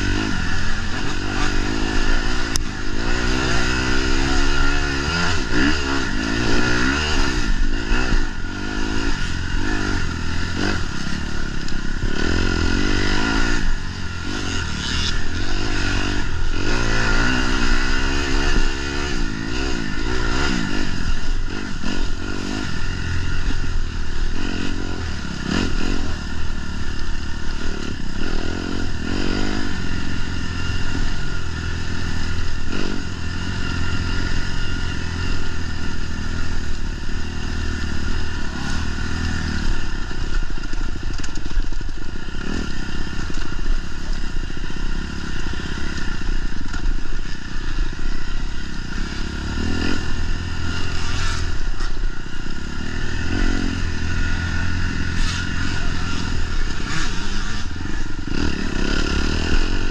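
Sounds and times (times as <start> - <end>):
racing engine revving: 0.0 - 23.6.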